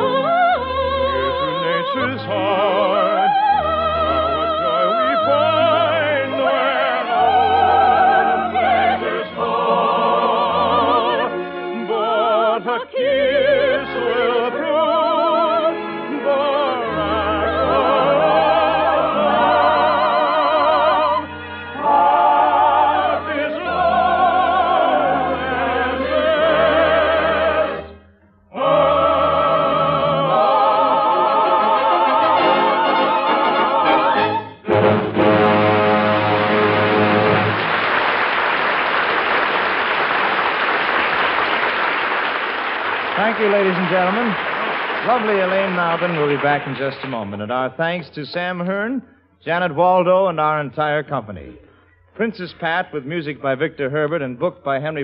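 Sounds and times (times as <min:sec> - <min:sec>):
operetta soloists and choir singing: 0:00.0 - 0:37.8
orchestra playing: 0:31.1 - 0:38.3, 0:43.1 - 0:47.2.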